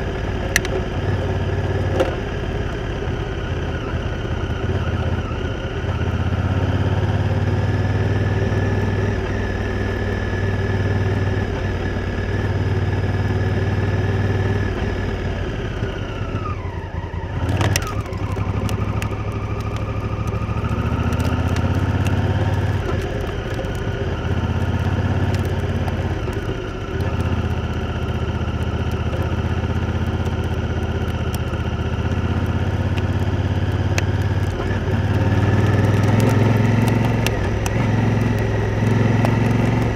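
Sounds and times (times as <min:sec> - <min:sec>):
motorcycle engine running: 0:00.0 - 0:39.9
small ticks and clatters: 0:17.4 - 0:39.9.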